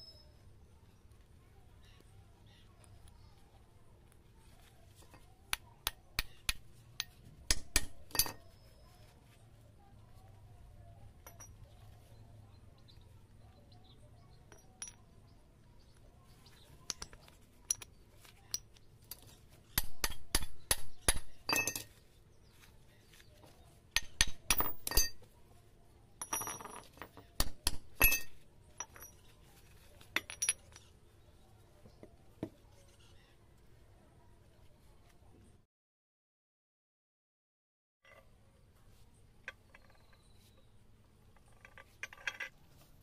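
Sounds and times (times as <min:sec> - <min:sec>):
steel gear parts clinking: 0:24.0 - 0:25.2, 0:26.2 - 0:29.4, 0:30.0 - 0:31.0.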